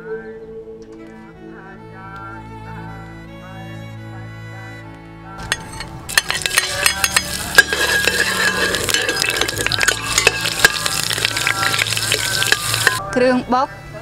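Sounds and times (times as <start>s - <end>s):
metal spoon clinking against pot: 5.5s - 13.0s
hot oil sizzling in a pot: 6.1s - 13.0s.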